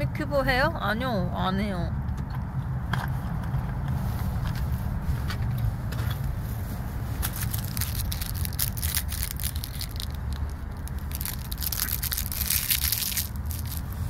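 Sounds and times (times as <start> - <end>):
car cabin rumble: 0.0 - 8.6
fabric rustling on microphone: 3.1 - 14.0.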